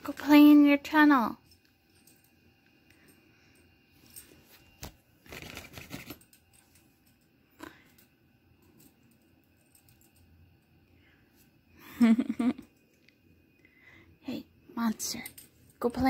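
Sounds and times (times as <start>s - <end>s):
crinkling fabric rustle: 4.3s - 6.2s.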